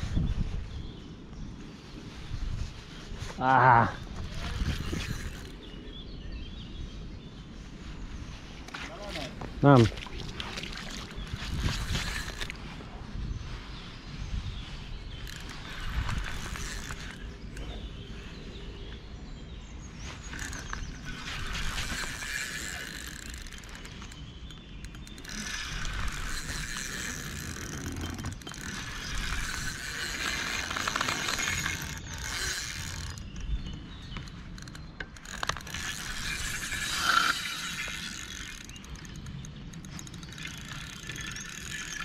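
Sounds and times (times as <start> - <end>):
fishing reel gears whirring: 4.2 - 5.7, 10.6 - 12.6, 15.1 - 18.2, 20.3 - 42.0.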